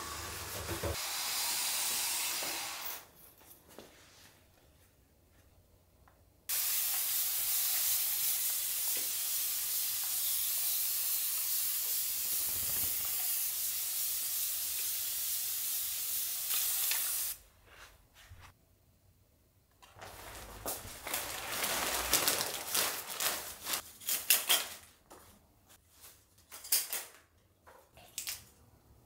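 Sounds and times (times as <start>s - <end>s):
spray mister hissing: 6.5s - 17.4s.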